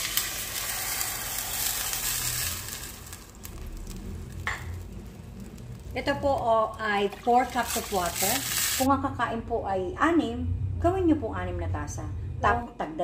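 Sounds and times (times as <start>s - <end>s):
food sizzling in a pan: 0.0s - 8.9s.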